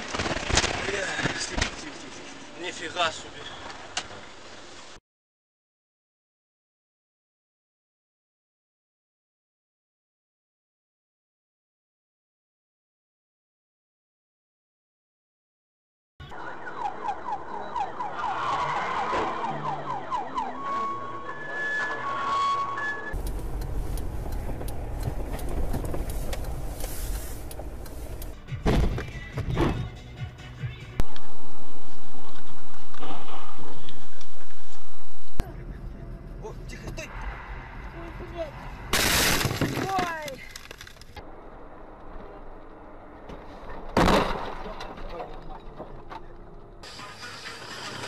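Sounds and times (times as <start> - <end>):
car engine and road rumble: 16.2 - 48.0
vehicle collision crash: 28.5 - 29.9, 38.8 - 41.1, 43.4 - 48.0.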